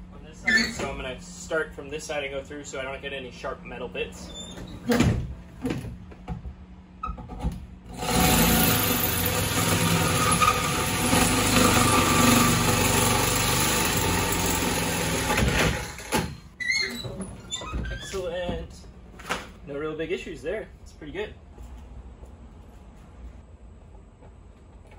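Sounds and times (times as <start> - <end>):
power drill cutting metal: 7.9 - 16.3.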